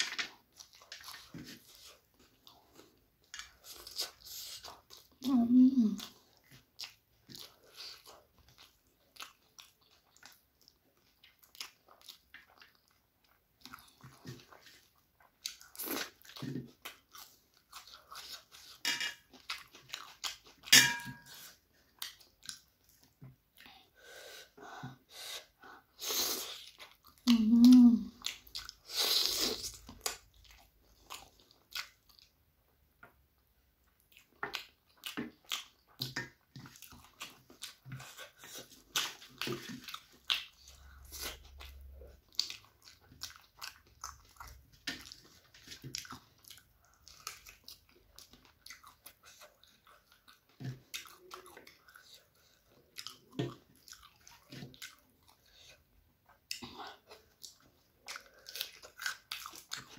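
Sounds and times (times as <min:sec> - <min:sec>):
chewing and mouth clicks: 0:00.0 - 0:23.9, 0:25.4 - 0:59.9
person humming: 0:27.3 - 0:28.1.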